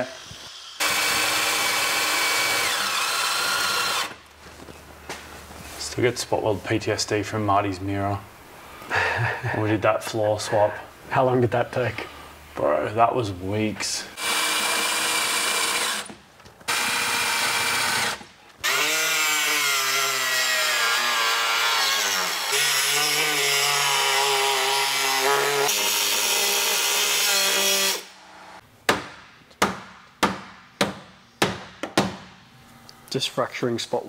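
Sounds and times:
power drill cutting metal: 0.0s - 4.2s, 14.2s - 28.2s.

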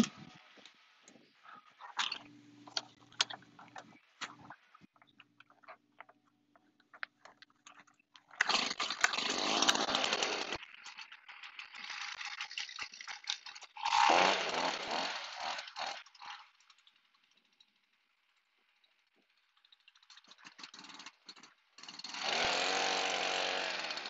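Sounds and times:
leaf blower rushing air: 9.2s - 10.6s, 13.9s - 15.8s, 22.2s - 24.0s.

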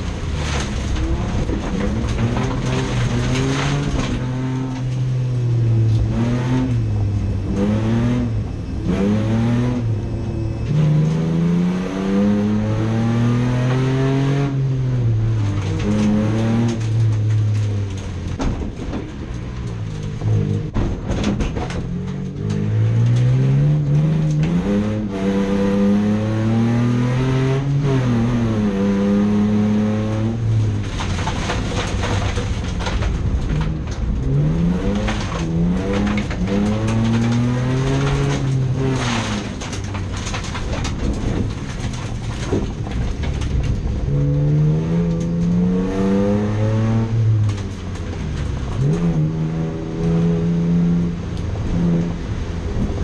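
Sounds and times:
racing car engine revving: 0.0s - 53.0s
sharp clicks and knocks: 15.3s - 24.8s, 30.4s - 45.6s.

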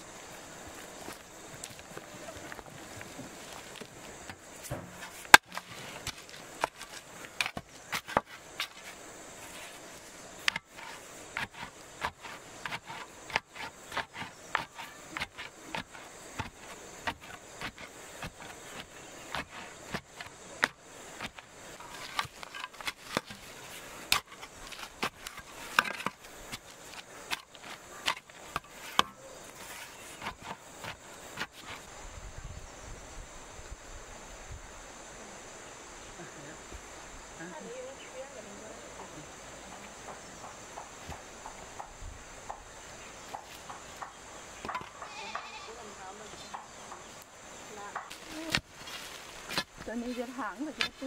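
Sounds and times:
pole tamping earth thuds: 1.0s - 31.8s, 43.3s - 45.6s, 47.9s - 51.0s.

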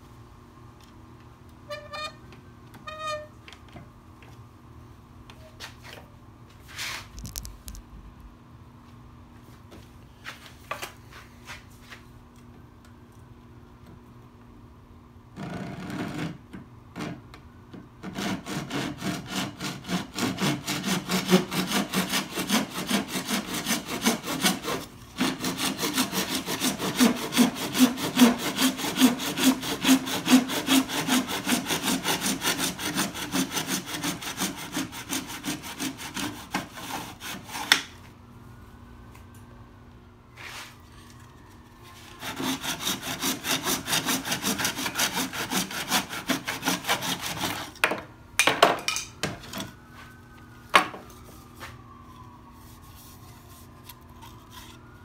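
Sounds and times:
handsaw cutting plastic pipe: 18.0s - 37.9s, 42.1s - 47.9s.

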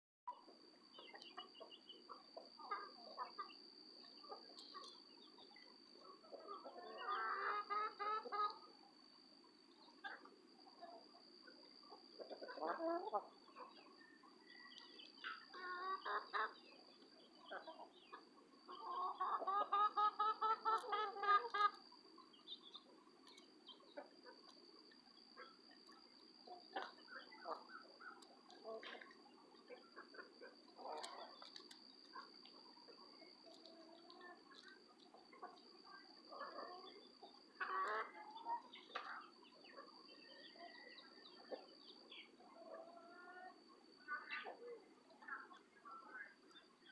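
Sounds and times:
chicken calls: 0.3s - 8.8s, 9.8s - 46.9s
hens clucking: 4.2s - 8.7s, 11.8s - 14.0s, 14.6s - 46.2s.

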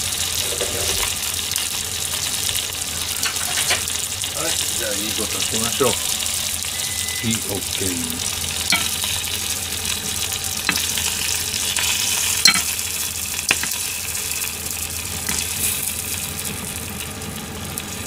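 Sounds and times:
chicken sizzling in hot oil: 0.0s - 18.0s
chopsticks knocking against pan: 10.7s - 10.9s.

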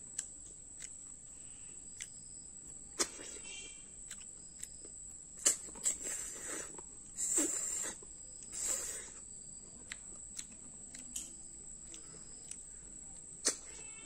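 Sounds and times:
slurping snails from shells: 5.4s - 9.2s.

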